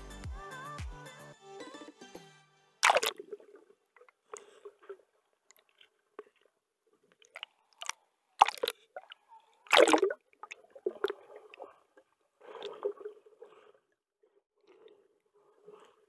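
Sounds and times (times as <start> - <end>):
underwater air bubbling: 7.2 - 14.0.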